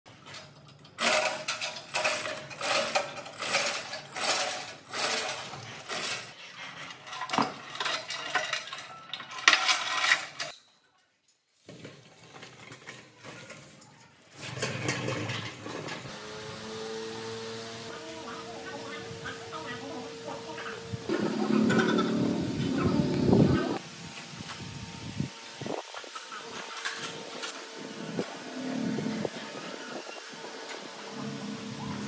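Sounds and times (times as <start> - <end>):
metal scraping and clanking: 0.2 - 10.6, 11.8 - 16.2, 21.1 - 23.6, 25.8 - 32.0.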